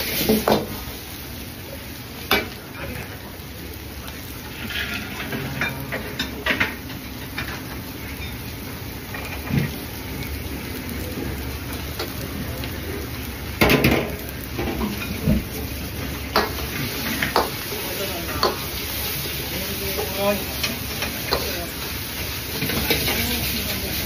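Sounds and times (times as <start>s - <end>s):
food sizzling in wok: 0.0s - 24.0s
metal ladle scraping and clanking wok: 4.5s - 6.6s.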